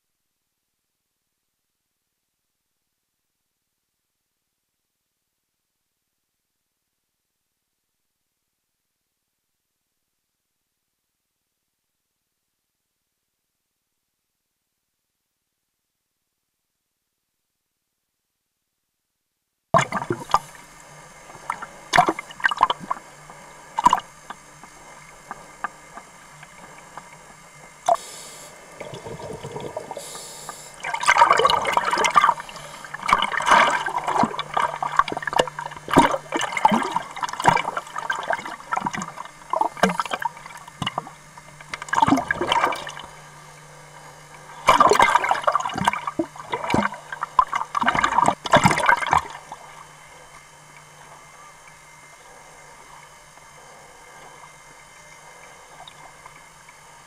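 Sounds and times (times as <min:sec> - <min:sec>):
faint steady hum: 0:00.0 - 0:57.0
water bubbling and gurgling: 0:19.8 - 0:27.9, 0:28.6 - 0:43.7, 0:44.4 - 0:51.3.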